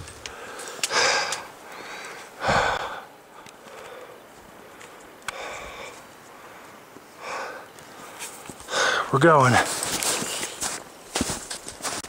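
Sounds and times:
person breathing hard: 0:00.2 - 0:09.1.

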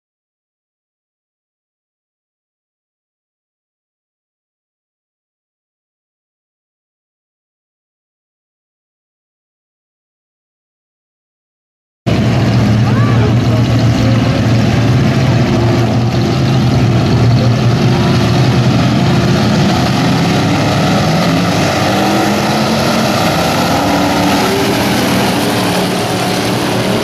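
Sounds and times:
race car engines droning: 0:12.1 - 0:27.0.

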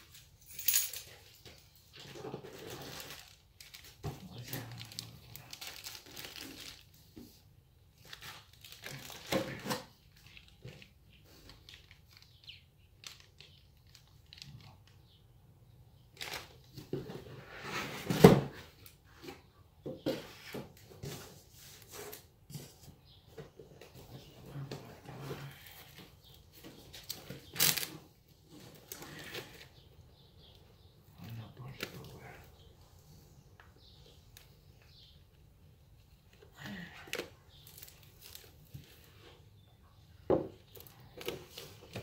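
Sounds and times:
plastic bags crinkling: 0:02.4 - 0:07.1, 0:08.0 - 0:15.0, 0:26.6 - 0:28.0, 0:37.5 - 0:39.1.

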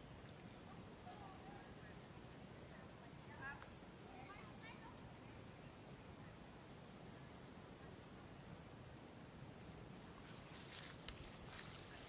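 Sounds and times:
insect chorus drone: 0:00.0 - 0:12.0
rustle with a click: 0:10.6 - 0:12.0.

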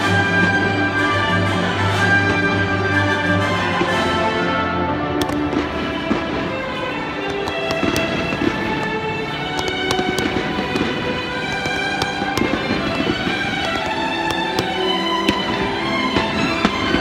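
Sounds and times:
fireworks cracking and banging: 0:05.2 - 0:17.0.

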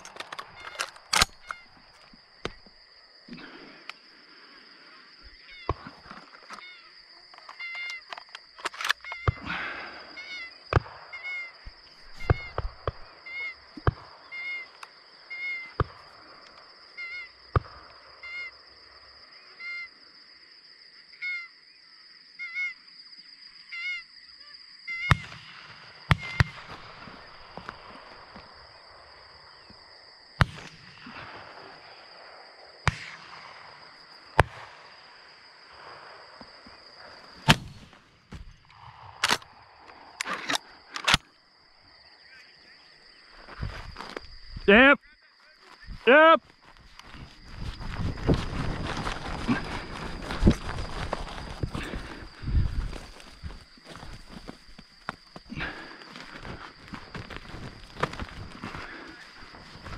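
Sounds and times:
shotgun shots: 0:25.1 - 0:27.0, 0:30.4 - 0:31.4, 0:32.9 - 0:33.8, 0:37.4 - 0:38.0.

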